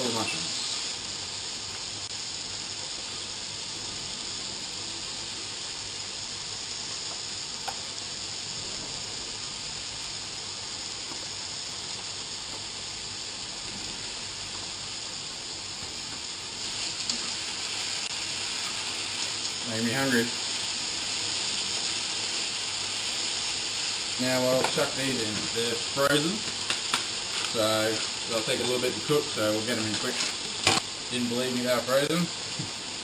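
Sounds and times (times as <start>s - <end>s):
meat and mushrooms sizzling: 0.0s - 33.0s.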